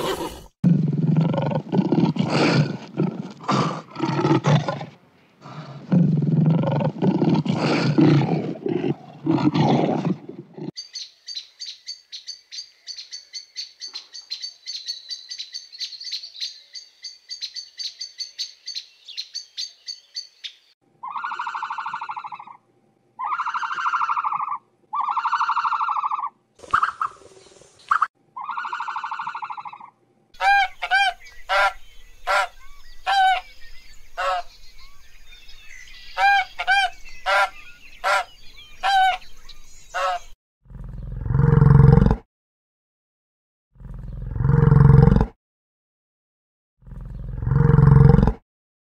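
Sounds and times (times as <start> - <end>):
lioness roaring: 0.0 - 10.7, 40.7 - 42.2, 43.8 - 45.3, 46.8 - 48.4
long even animal calls: 21.0 - 22.6, 23.2 - 27.2, 28.0 - 32.5
geese honking: 30.4 - 32.5, 33.1 - 33.5, 34.2 - 34.5, 36.2 - 39.2, 40.0 - 40.2.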